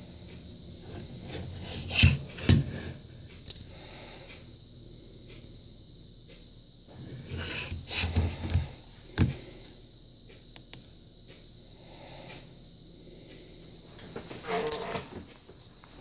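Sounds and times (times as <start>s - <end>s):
plastic camera rubbing and knocking: 7.3s - 9.3s.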